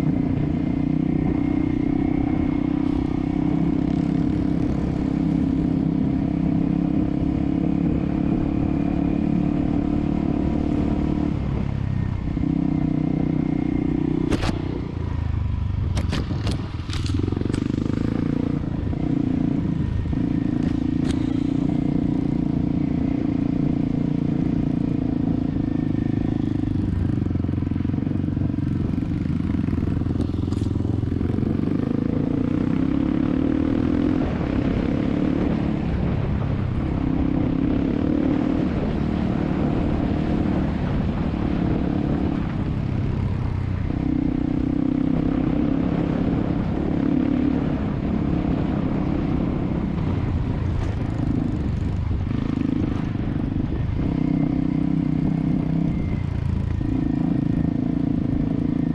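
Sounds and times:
motorcycle engine running: 0:00.0 - 0:58.9.

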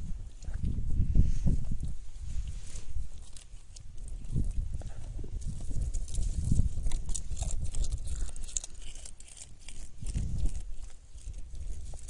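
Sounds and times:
microphone handling rumble: 0:00.0 - 0:03.3, 0:03.9 - 0:08.4.

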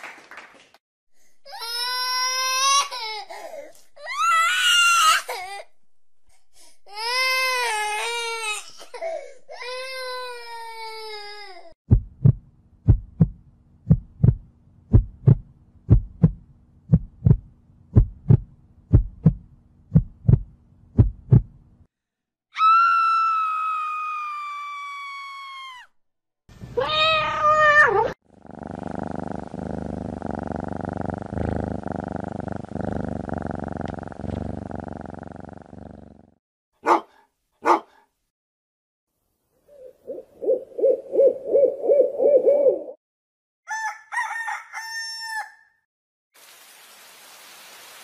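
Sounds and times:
heartbeat thumps: 0:11.9 - 0:21.6
low pulsing rumble: 0:11.9 - 0:21.6.

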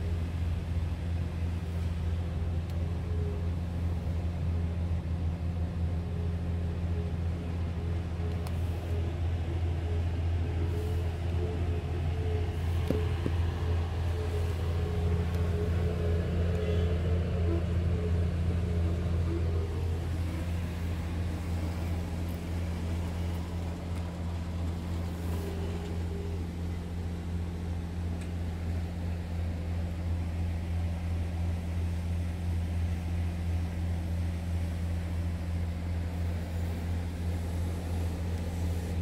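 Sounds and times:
diesel engine idling: 0:00.0 - 0:39.0.

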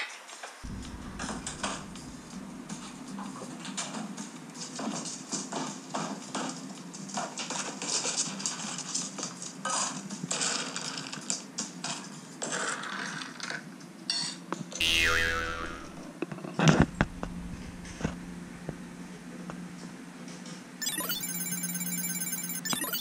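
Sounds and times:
low rumble: 0:00.7 - 0:04.0, 0:16.8 - 0:19.4
tone sweeping down in pitch: 0:14.8 - 0:16.1.

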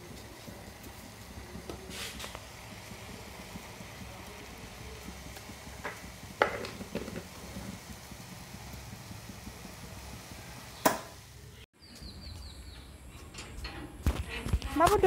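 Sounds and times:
water boiling in saucepan: 0:00.0 - 0:11.6.

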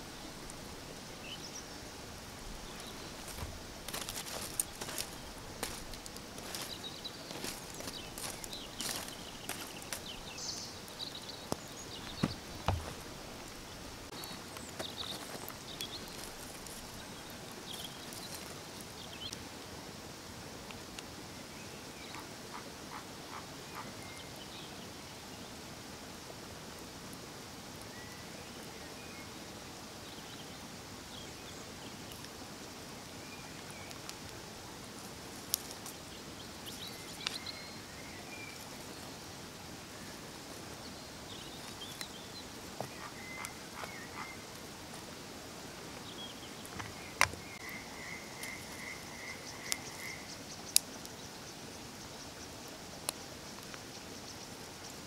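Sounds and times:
insects hissing: 0:00.0 - 0:55.0
frogs croaking: 0:22.1 - 0:24.0, 0:42.8 - 0:44.5, 0:46.6 - 0:52.6.

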